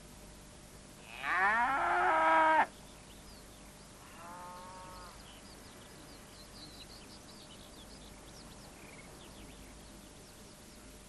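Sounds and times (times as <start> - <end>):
small birds chirping: 2.7 - 11.0.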